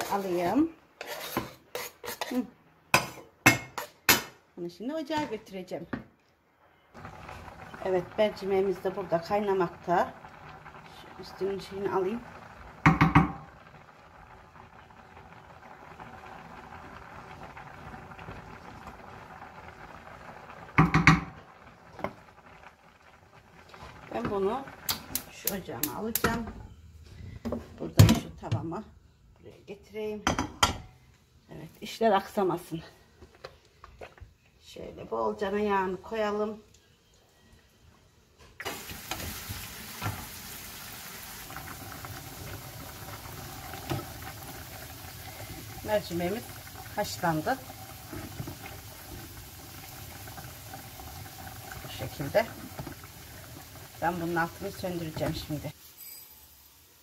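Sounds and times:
pot boiling and bubbling: 0:00.0 - 0:04.3, 0:06.7 - 0:57.0
wooden spoon knocking pot: 0:12.8 - 0:13.4, 0:20.8 - 0:21.4.

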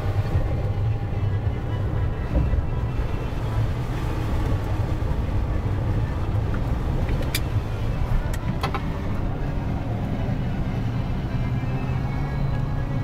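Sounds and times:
road noise: 0:00.0 - 0:13.0
truck engine rumble: 0:00.0 - 0:13.0.

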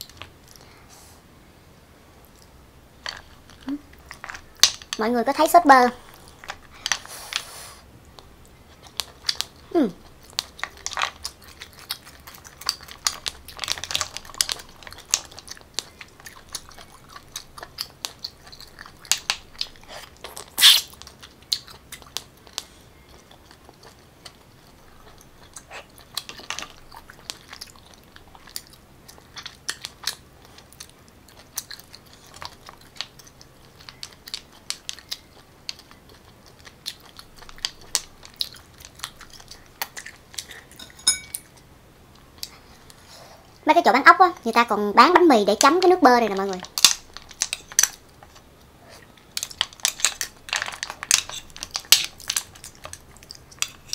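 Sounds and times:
person chewing and biting: 0:08.2 - 0:42.6
sharp mouth clicks: 0:20.4 - 0:21.0.

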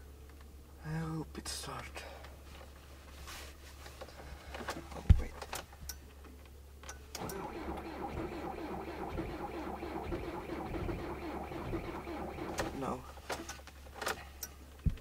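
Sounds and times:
diesel engine starting and running: 0:07.2 - 0:12.8.

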